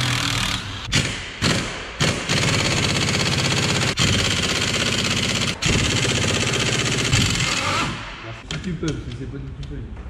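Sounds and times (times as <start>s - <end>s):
pneumatic impact wrench hammering: 0.0s - 8.1s.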